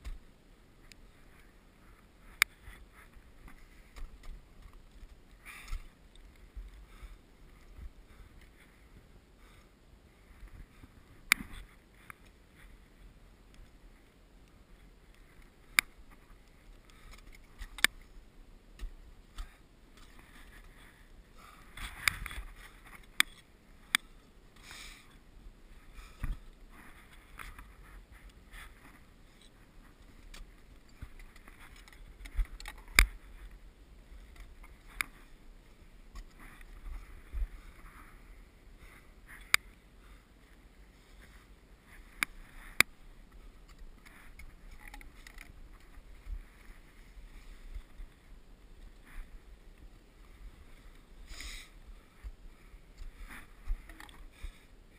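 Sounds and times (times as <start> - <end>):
breathing: 5.4 - 5.9, 6.7 - 7.3, 8.0 - 11.0, 16.8 - 17.4, 19.4 - 22.9, 24.6 - 25.2, 25.8 - 29.5, 36.4 - 42.9, 50.6 - 54.9.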